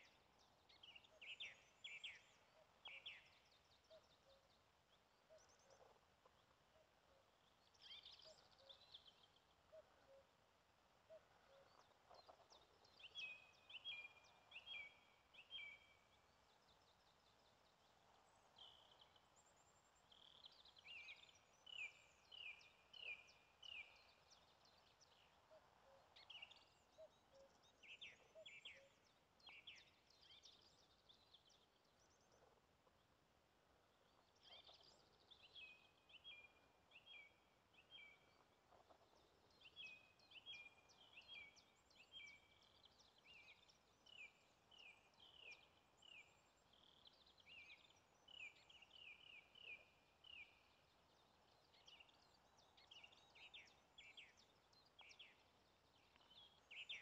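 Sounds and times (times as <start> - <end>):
songbird song: 0.0 - 57.0.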